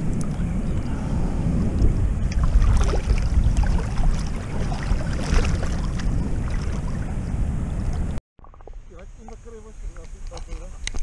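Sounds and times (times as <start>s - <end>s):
wind buffeting microphone: 0.0s - 8.2s
person wading in seawater: 2.3s - 7.3s.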